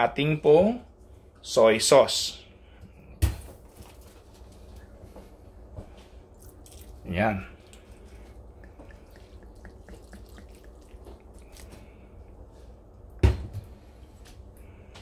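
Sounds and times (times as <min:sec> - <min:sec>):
sauce pouring and dripping: 0:06.3 - 0:13.2.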